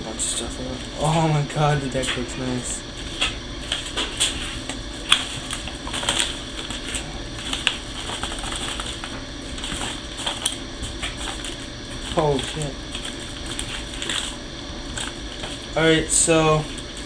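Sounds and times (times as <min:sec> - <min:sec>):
packaging handled: 0:03.0 - 0:15.8.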